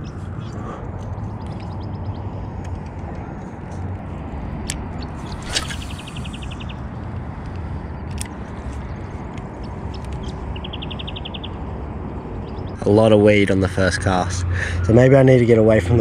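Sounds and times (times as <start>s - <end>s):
wind over microphone: 0.0s - 10.5s
quick high ticks: 5.0s - 6.8s.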